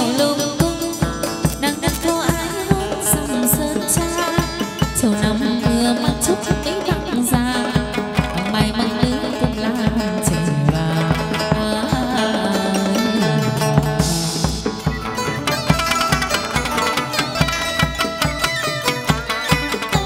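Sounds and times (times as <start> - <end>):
plucked-string melody: 0.0 - 20.0
quick drum beat: 0.0 - 20.0
sharp high strikes: 13.2 - 20.0.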